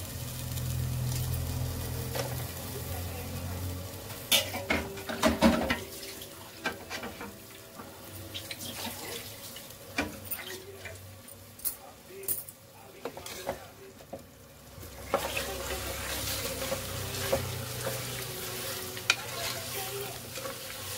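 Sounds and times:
meat sizzling in oil: 0:00.0 - 0:11.6, 0:14.3 - 0:20.9
pot clattering: 0:04.3 - 0:11.0.

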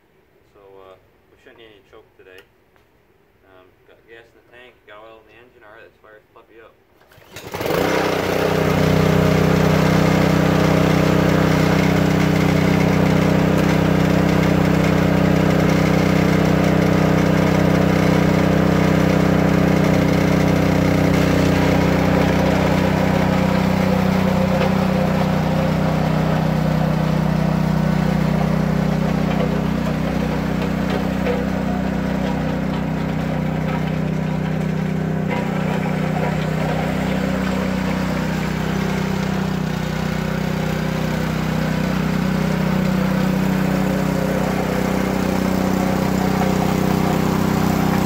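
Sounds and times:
engine pull-start: 0:07.0 - 0:10.2, 0:15.5 - 0:41.2
small engine running: 0:07.0 - 0:48.0.

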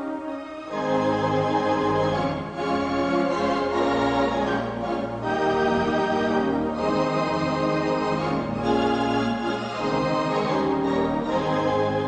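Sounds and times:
organ music: 0:00.0 - 0:12.0.

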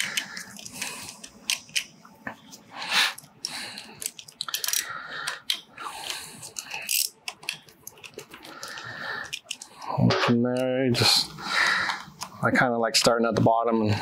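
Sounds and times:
socket tool clicking and scraping: 0:00.0 - 0:02.0, 0:03.1 - 0:10.7.

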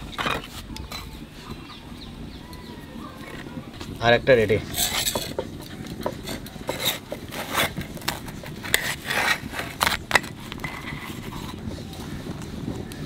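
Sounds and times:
metal spatula scraping an iron pan: 0:04.6 - 0:11.6.

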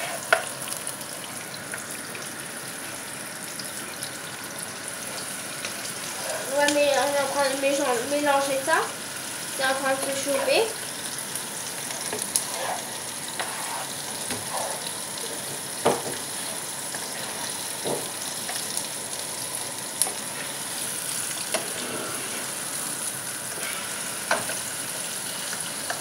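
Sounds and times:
onions sizzling in oil: 0:00.0 - 0:26.0
spatula stirring and scraping: 0:05.8 - 0:07.1, 0:11.8 - 0:15.6, 0:16.3 - 0:17.8, 0:21.5 - 0:24.6.

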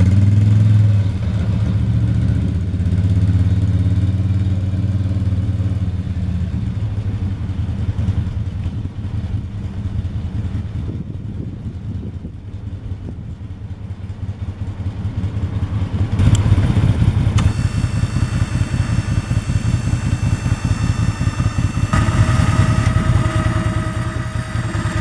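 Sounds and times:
atv engine running: 0:00.0 - 0:25.0
electric winch whining: 0:17.4 - 0:25.0.

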